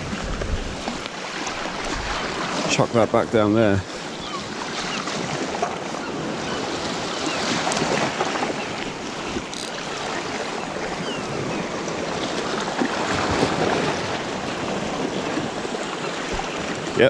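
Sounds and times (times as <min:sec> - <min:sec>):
wind buffeting microphone: 0:00.0 - 0:01.0
waves washing against rocks: 0:00.0 - 0:17.0.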